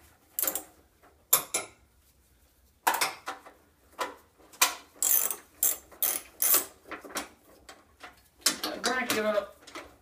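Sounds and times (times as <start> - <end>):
ratchet wrench clicking: 5.0 - 6.7.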